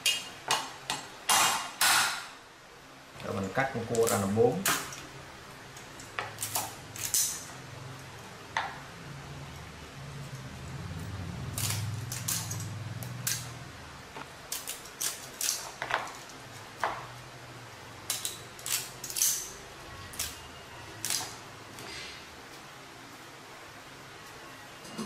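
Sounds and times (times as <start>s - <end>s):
shears snipping crab shell: 14.5s - 15.8s.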